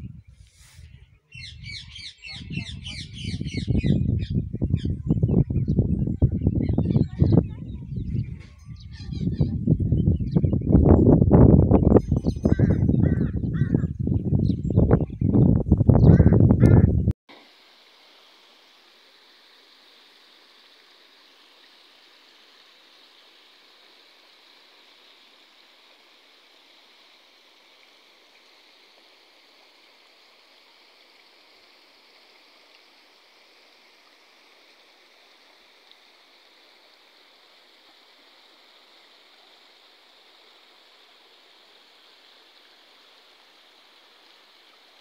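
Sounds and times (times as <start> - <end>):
running water: 17.3 - 45.0.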